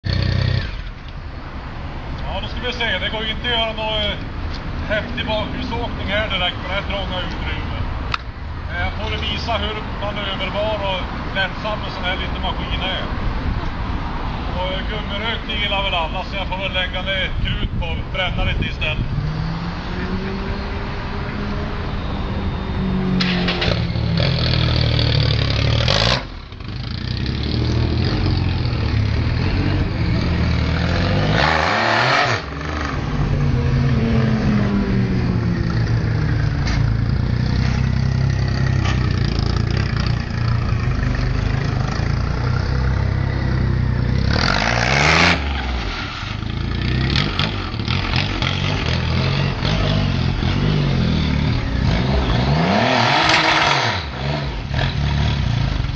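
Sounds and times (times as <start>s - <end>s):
motorcycle engine revving: 0.0s - 1.0s, 22.8s - 55.9s.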